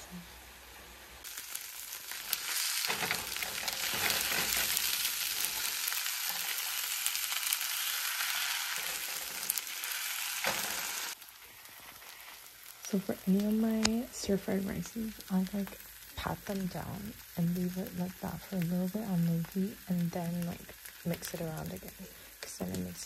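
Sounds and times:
rice sizzling in a frying pan: 0.0 - 23.0
spoon scraping a pan: 2.3 - 6.8, 7.8 - 9.8.

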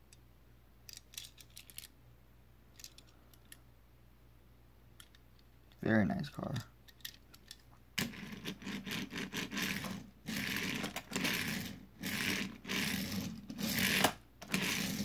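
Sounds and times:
toy car wheels scraping on table: 8.0 - 15.0.

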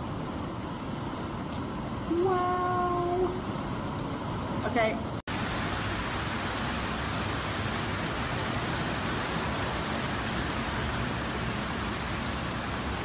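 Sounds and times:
heavy rain pouring: 5.3 - 13.0.

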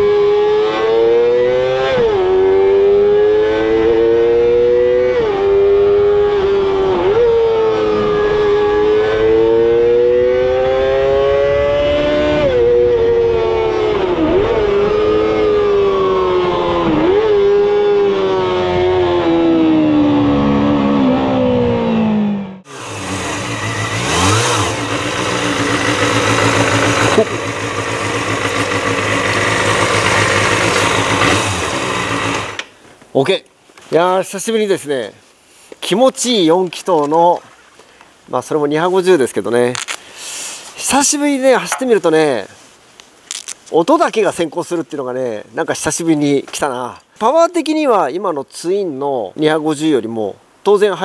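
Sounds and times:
motorcycle engine revving high: 0.0 - 32.7
motorcycle engine idling: 22.7 - 32.6.

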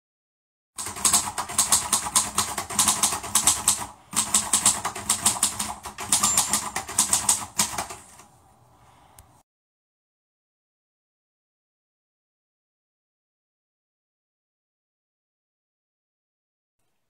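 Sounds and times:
keyboard typing clicks: 0.8 - 8.3.

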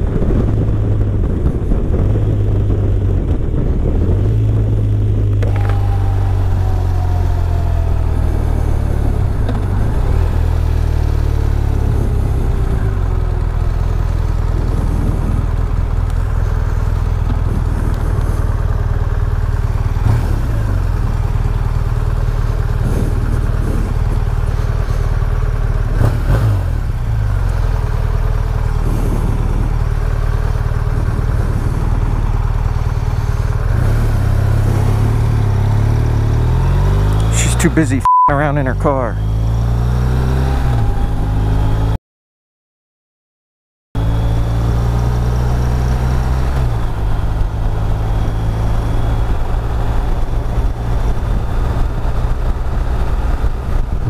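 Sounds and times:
motorcycle engine running: 0.0 - 37.7.

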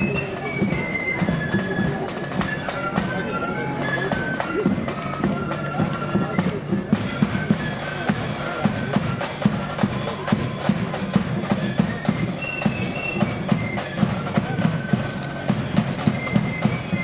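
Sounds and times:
flutes playing melody: 0.0 - 17.0
snare and bass drums beat: 4.0 - 17.0.

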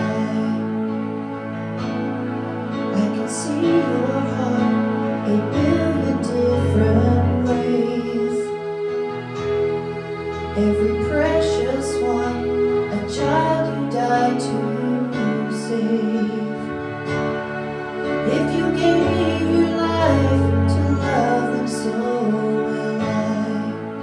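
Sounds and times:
digital piano chords: 0.0 - 24.0
woman singing: 2.9 - 8.6, 10.6 - 16.7, 18.2 - 24.0.

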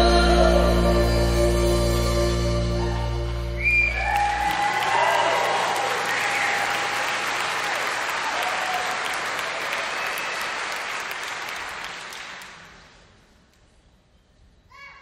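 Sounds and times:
whistles: 3.5 - 4.6, 6.0 - 6.7, 9.9 - 10.6
audience applauding: 3.6 - 13.0.

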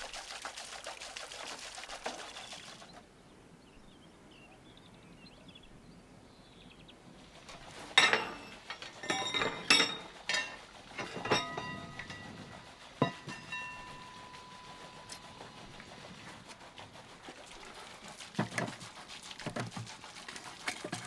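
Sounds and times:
metal cookware clanking: 7.9 - 15.4.

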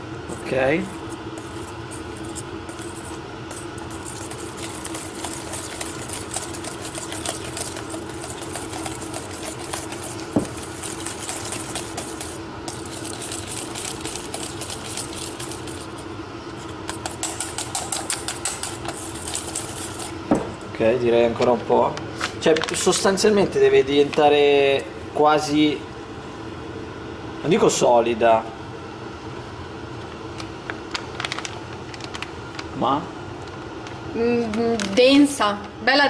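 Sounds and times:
steady low hum: 0.0 - 36.0
whisk clattering in metal bowl: 1.4 - 16.0, 16.9 - 20.1.

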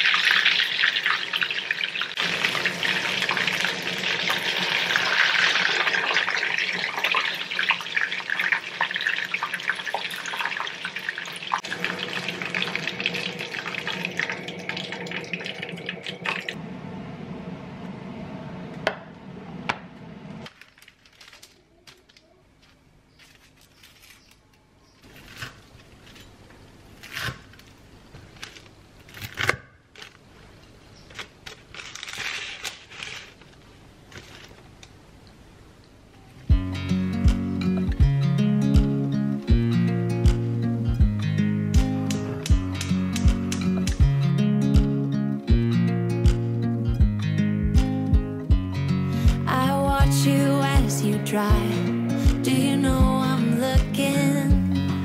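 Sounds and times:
chicken deep-frying in oil: 0.0 - 16.6.

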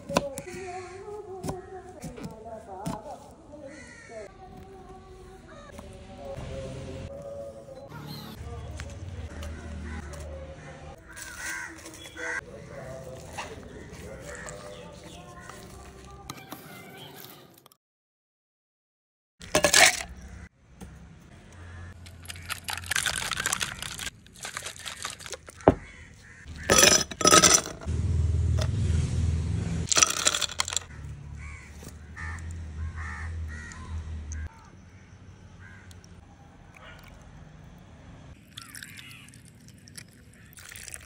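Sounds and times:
ice cubes clattering in glass: 19.4 - 20.2, 22.1 - 25.8, 26.6 - 27.9, 29.9 - 30.9
liquid pouring over ice: 22.2 - 25.7, 29.9 - 30.8, 38.4 - 41.0.

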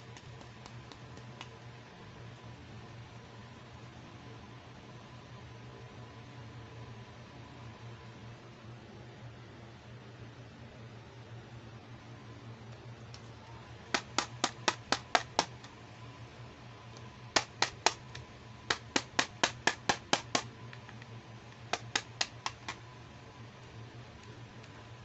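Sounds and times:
fingers tapping plastic case: 13.9 - 15.7, 17.4 - 21.0, 21.7 - 22.8.

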